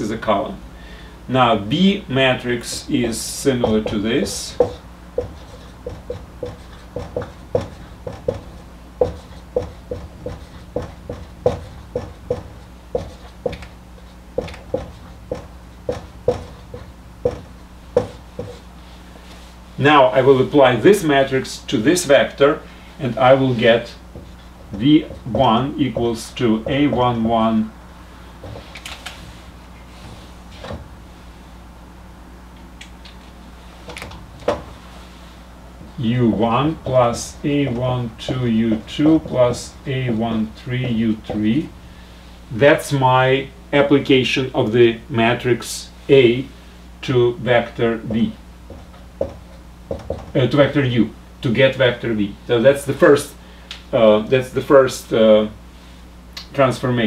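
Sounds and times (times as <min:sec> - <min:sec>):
steady low hum: 0:00.0 - 0:57.0
marker tapping on whiteboard: 0:03.6 - 0:13.7, 0:14.4 - 0:18.6, 0:24.1 - 0:27.2, 0:36.3 - 0:41.5, 0:48.1 - 0:50.3.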